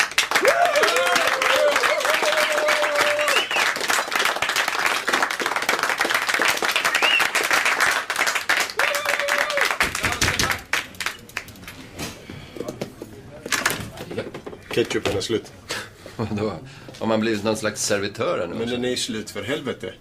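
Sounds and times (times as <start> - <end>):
small group clapping: 0.0 - 11.7.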